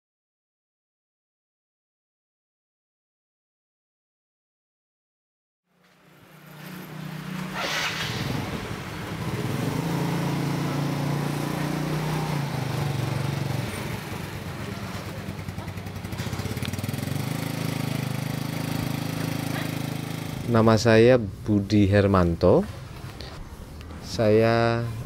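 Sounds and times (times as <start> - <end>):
traffic hum: 5.7 - 25.0
motorcycles passing: 5.8 - 25.0.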